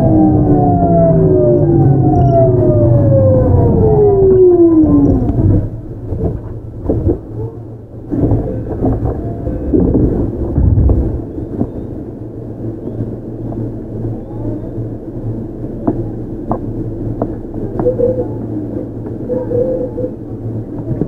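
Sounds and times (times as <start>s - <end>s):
electric train inverter whining: 0.0s - 21.0s
wheel and track rumble: 0.0s - 21.0s
train knocks: 8.1s - 12.0s, 15.8s - 18.0s.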